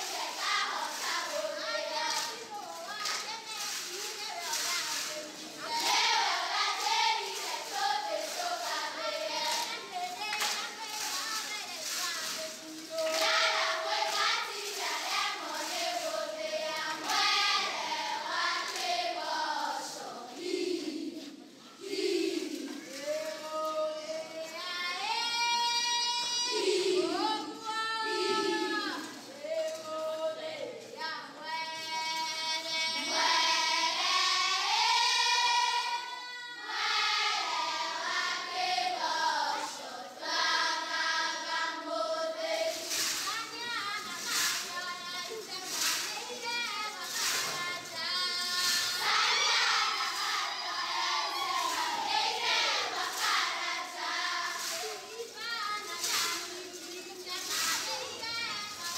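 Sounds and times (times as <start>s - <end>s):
group of voices singing: 0.0s - 4.0s, 4.6s - 11.2s, 12.2s - 58.9s
high voices calling out together: 25.0s - 30.4s.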